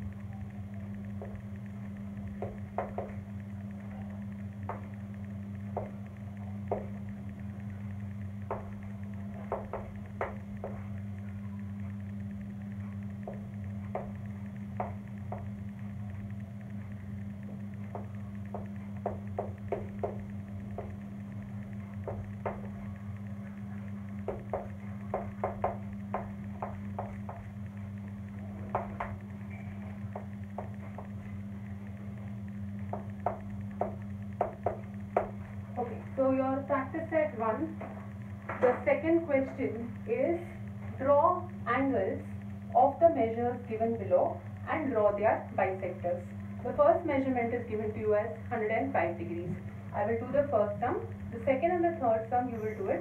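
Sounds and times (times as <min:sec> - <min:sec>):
steady low hum: 0:00.0 - 0:53.0
chalk tapping on blackboard: 0:09.5 - 0:10.8, 0:17.9 - 0:21.0, 0:22.0 - 0:22.7, 0:24.2 - 0:27.5, 0:32.9 - 0:35.4.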